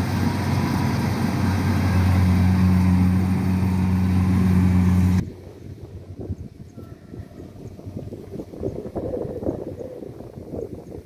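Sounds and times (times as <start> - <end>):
combine harvester engine hum: 0.0 - 6.8.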